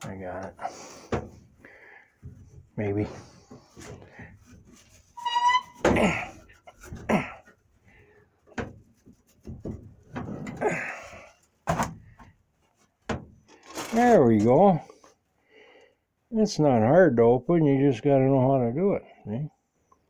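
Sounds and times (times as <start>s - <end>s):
short squeak: 5.2s - 5.9s.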